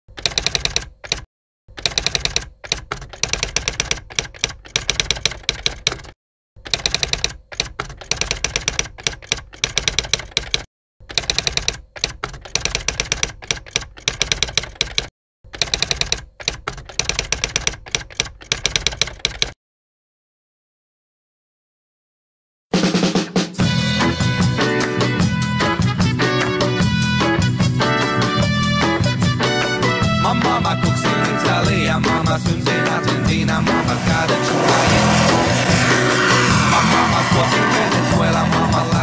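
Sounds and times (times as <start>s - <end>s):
typewriter keys striking: 0.1s - 19.6s.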